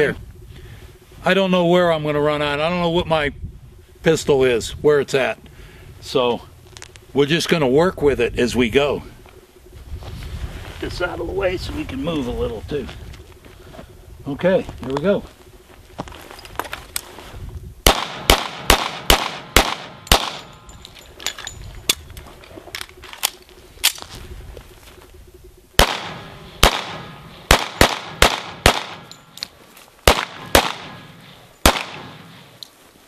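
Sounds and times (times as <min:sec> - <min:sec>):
pistol gunshots: 0:17.8 - 0:20.6, 0:25.8 - 0:29.4, 0:30.0 - 0:32.4.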